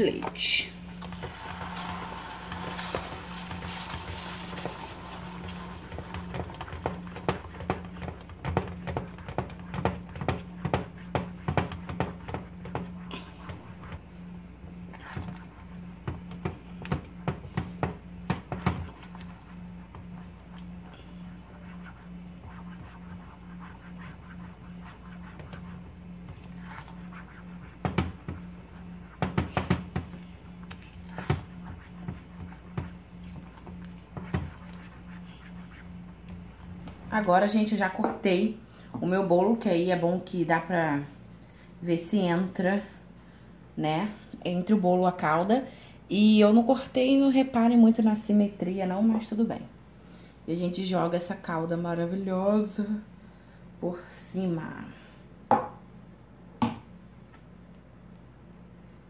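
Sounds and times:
spatula stirring thick sauce: 0.9s - 12.0s
spatula knocking and scraping pan: 1.0s - 13.6s, 29.2s - 30.2s.

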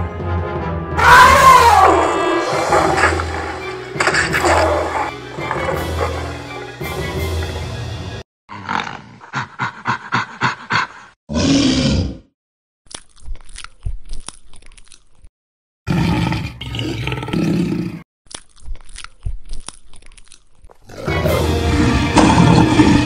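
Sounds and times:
music: 0.0s - 8.2s, 21.0s - 23.0s
loud roar: 1.0s - 6.3s, 20.9s - 23.0s
crunching and clicking: 12.9s - 15.3s, 18.3s - 20.9s.

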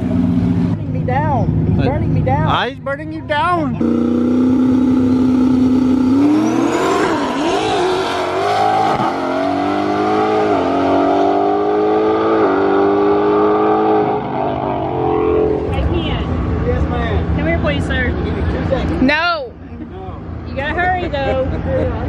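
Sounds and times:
race car engine accelerating: 3.8s - 19.0s.

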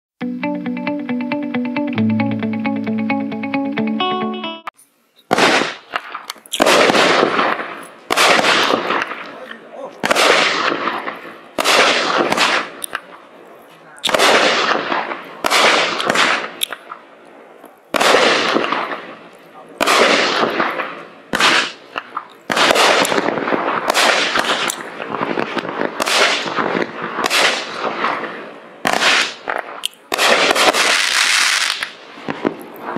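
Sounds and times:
firework shots launching and bursting: 5.3s - 9.4s, 10.0s - 13.2s, 14.0s - 17.0s, 17.9s - 19.2s, 19.8s - 32.9s
firework crackling tail: 5.3s - 13.4s, 14.0s - 32.9s.

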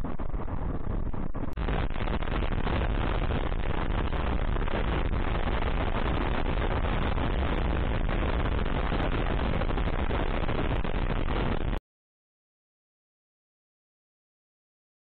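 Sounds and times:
wind on microphone: 0.0s - 11.8s.

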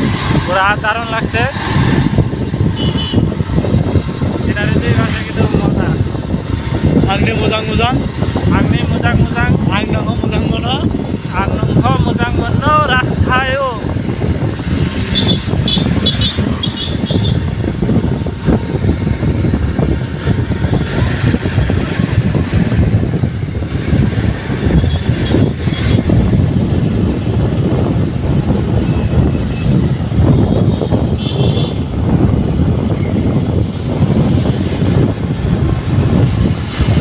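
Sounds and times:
wind buffeting microphone: 0.0s - 37.0s
motorcycle engine running: 13.9s - 37.0s.

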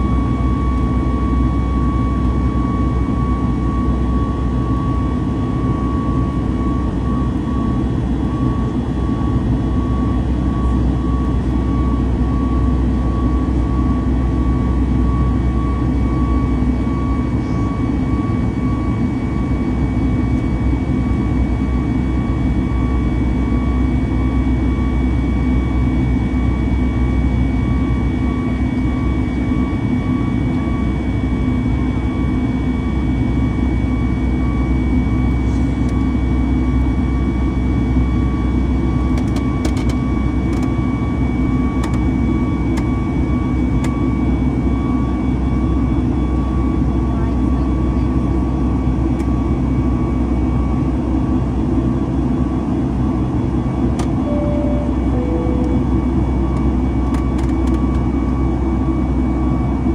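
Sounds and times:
airplane cabin rumble: 46.2s - 59.9s
steady high tones: 54.3s - 56.2s.

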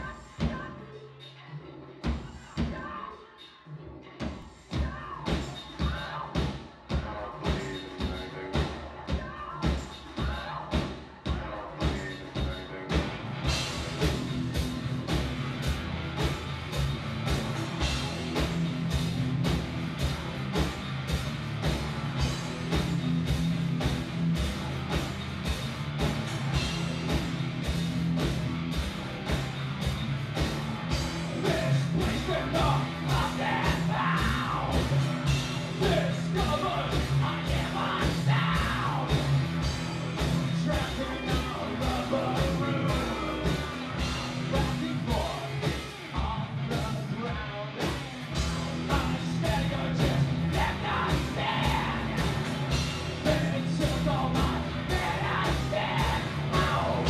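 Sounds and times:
drums playing fast beat: 0.0s - 1.3s, 1.9s - 3.4s, 4.1s - 57.0s
person singing and shouting: 0.0s - 13.2s, 31.3s - 57.0s
distorted electric guitar: 11.3s - 57.0s.

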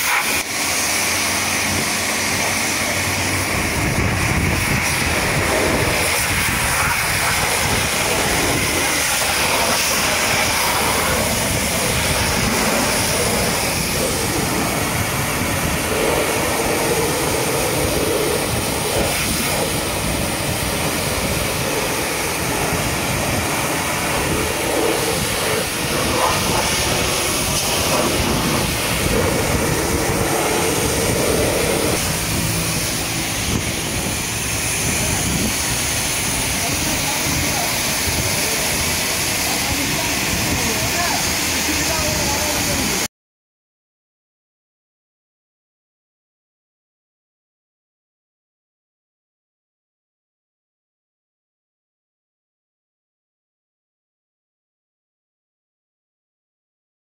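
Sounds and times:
pressure washer spraying: 0.0s - 43.1s.

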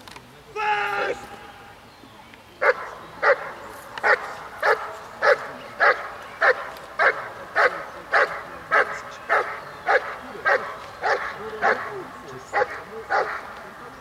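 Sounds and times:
dog barking: 2.6s - 13.5s.

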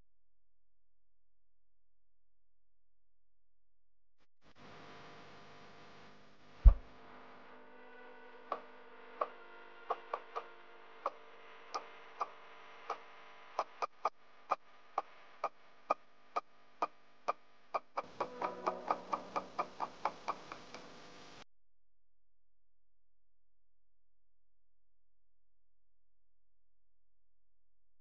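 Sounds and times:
faint steady hum: 4.4s - 21.4s.

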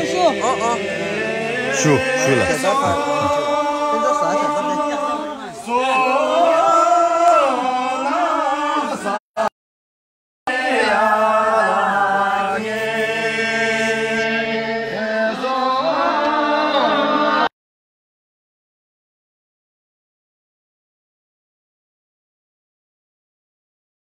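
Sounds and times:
group of voices chanting: 0.0s - 9.5s.

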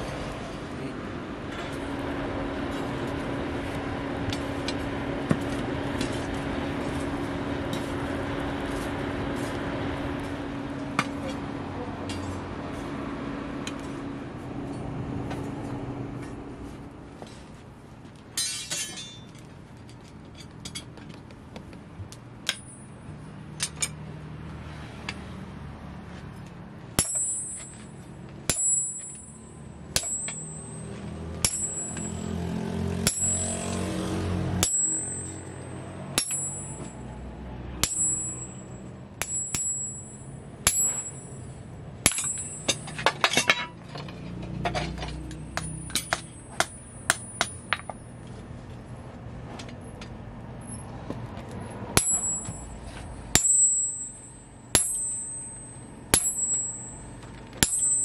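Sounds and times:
hammer striking metal on anvil: 18.4s - 19.3s, 27.0s - 43.8s, 44.7s - 48.1s, 52.0s - 58.0s.

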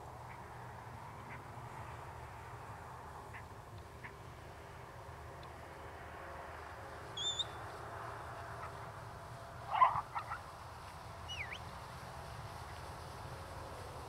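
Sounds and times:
animal chirps: 7.2s - 7.6s, 11.3s - 11.6s.

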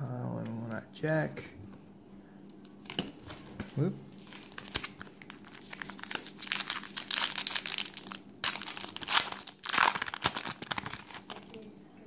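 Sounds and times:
foil wrapper crinkling: 2.8s - 11.7s.

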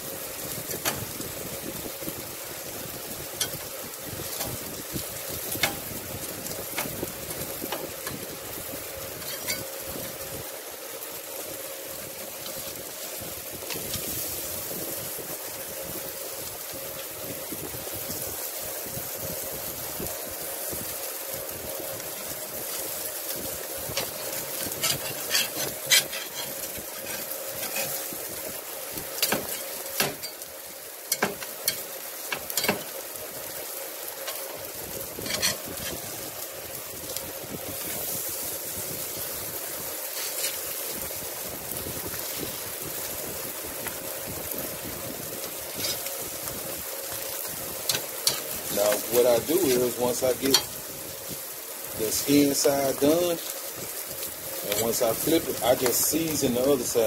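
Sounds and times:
fish sizzling on a grill: 0.0s - 57.0s
metal spatula scraping a grate: 9.2s - 9.7s, 24.0s - 28.1s, 35.2s - 36.0s, 40.1s - 40.7s.

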